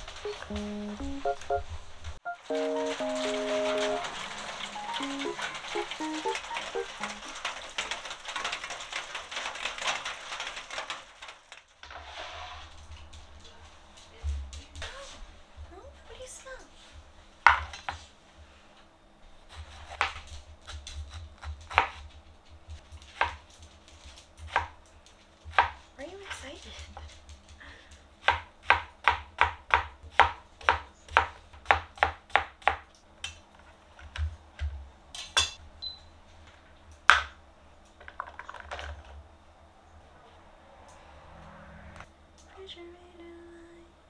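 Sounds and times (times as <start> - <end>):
knife chopping on cutting board: 19.5 - 22.1.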